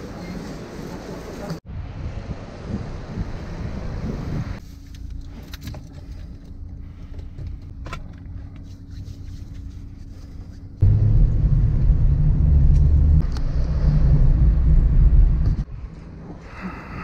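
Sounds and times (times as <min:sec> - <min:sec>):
wind rumbling on microphone: 0:01.6 - 0:04.6, 0:10.8 - 0:16.4
low hum inside car: 0:04.6 - 0:16.8.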